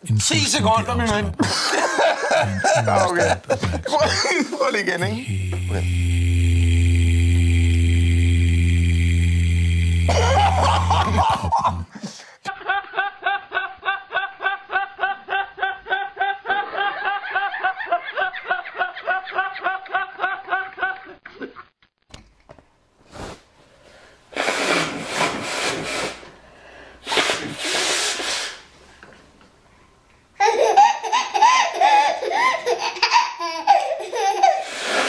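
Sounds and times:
man laughing hard: 1.4 - 5.8, 10.1 - 21.7
hissing nose blows: 5.2 - 11.1, 23.1 - 28.7, 34.5 - 35.0.

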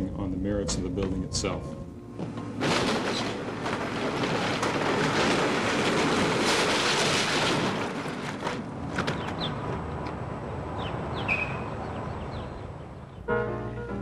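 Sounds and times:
debris falling: 2.2 - 9.9
building demolition crashing and cracking: 2.4 - 9.9.

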